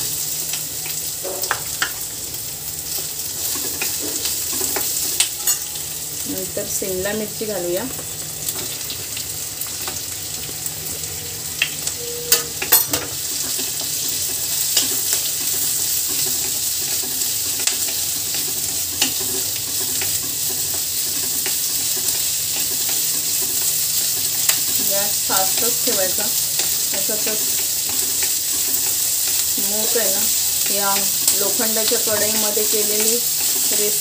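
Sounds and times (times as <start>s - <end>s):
vegetables sizzling in oil: 0.0s - 34.0s.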